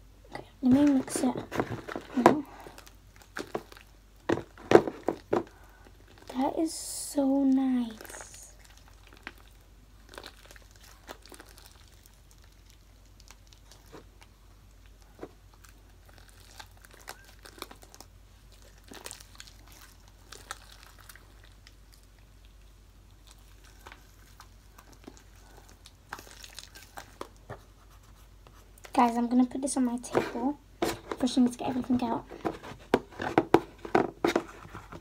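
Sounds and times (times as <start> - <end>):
slime clicking and crackling: 7.5 - 27.5.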